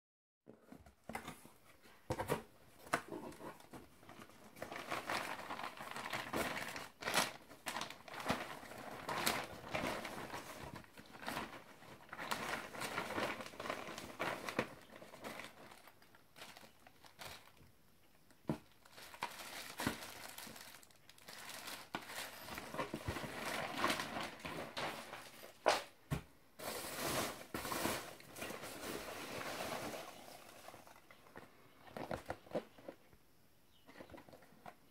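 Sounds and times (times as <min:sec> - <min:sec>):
packing peanuts rustling: 0:03.5 - 0:17.7, 0:18.5 - 0:25.9, 0:26.6 - 0:33.0
plastic bag crinkling: 0:04.0 - 0:17.7, 0:18.5 - 0:25.9, 0:26.6 - 0:33.0.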